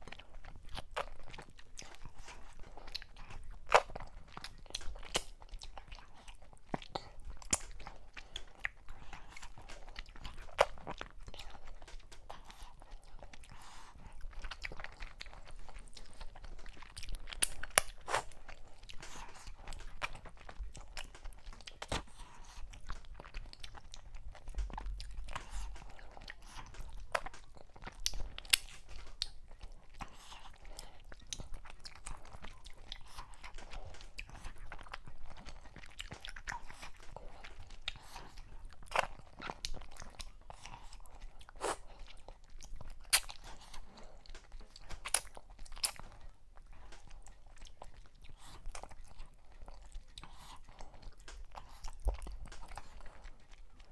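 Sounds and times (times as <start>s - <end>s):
person chewing: 0.0s - 53.9s
sharp clicks and crunches: 14.3s - 30.2s, 42.7s - 53.6s.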